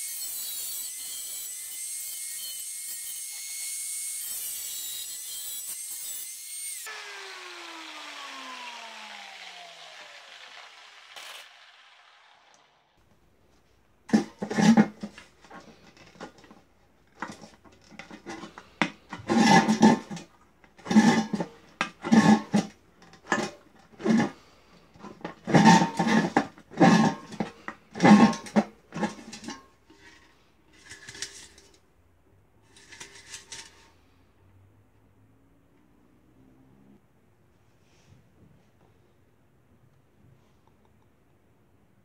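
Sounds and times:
metal can lid clanking and popping: 0:25.2 - 0:31.7, 0:32.8 - 0:33.8.

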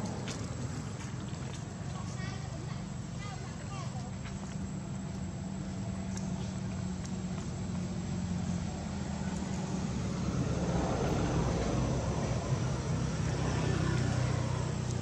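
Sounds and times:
low engine-like drone: 0:04.6 - 0:15.0.

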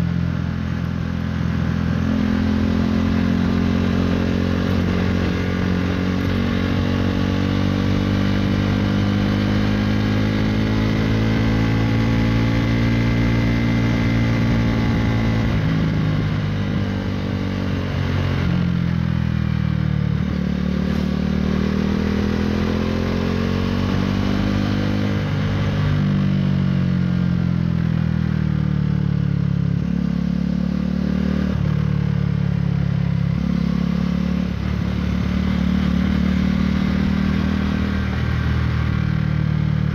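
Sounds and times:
motorcycle engine while riding: 0:00.0 - 0:39.9.

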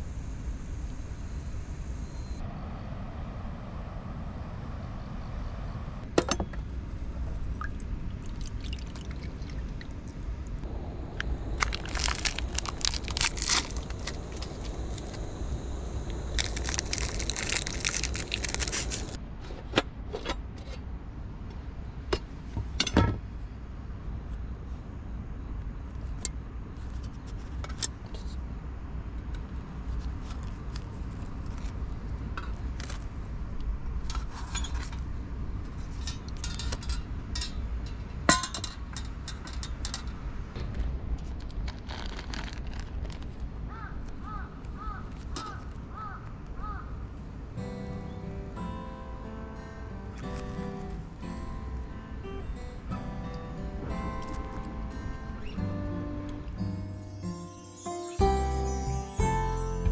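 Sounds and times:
steady low rumble: 0:00.0 - 0:19.3, 0:40.4 - 0:44.2
foil packet rustling: 0:11.4 - 0:19.2, 0:41.4 - 0:43.6
contents poured into metal cup: 0:11.6 - 0:15.2, 0:16.3 - 0:19.2.

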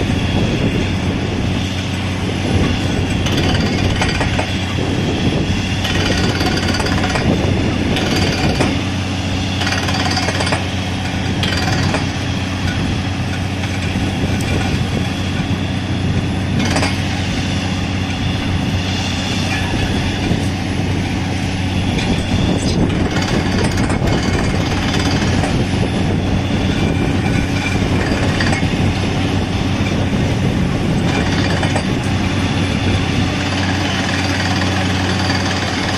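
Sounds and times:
drill rig hammering: 0:00.0 - 0:35.9
low engine hum: 0:00.0 - 0:35.9.

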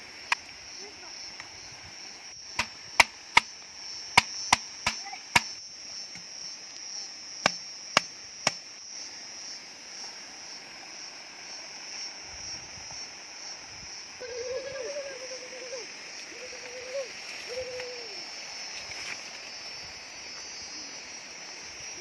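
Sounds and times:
insects droning: 0:00.0 - 0:22.0
machete chopping bamboo: 0:02.5 - 0:06.3, 0:07.4 - 0:08.6.

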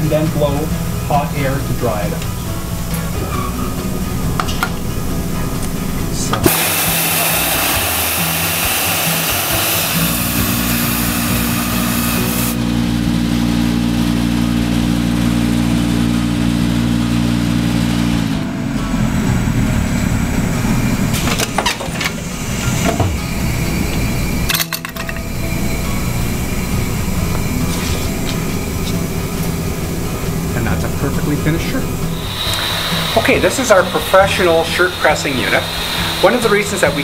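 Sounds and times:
hot-air blower humming: 0:00.0 - 0:37.0
steam hissing: 0:06.4 - 0:12.6, 0:25.3 - 0:37.0.

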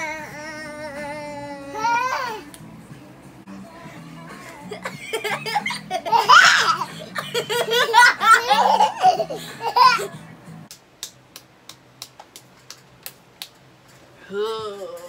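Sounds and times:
music with bass line: 0:00.0 - 0:10.7
toddler laughing: 0:04.6 - 0:10.2.

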